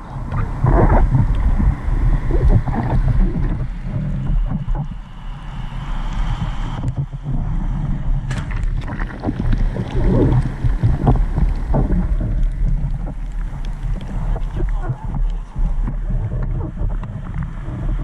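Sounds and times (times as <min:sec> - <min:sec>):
wind rumble on microphone: 0:00.0 - 0:18.0
water sloshing: 0:08.3 - 0:15.0.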